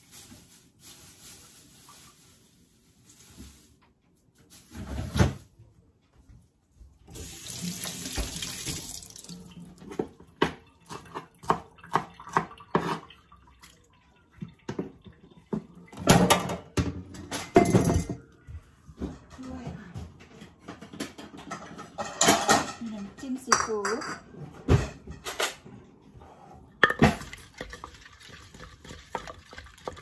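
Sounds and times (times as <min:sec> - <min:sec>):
water running from tap into sink: 0:07.1 - 0:16.8, 0:26.9 - 0:30.0
knocks and clatter at sink: 0:07.8 - 0:09.0, 0:09.7 - 0:13.3, 0:14.4 - 0:25.8, 0:26.8 - 0:30.0.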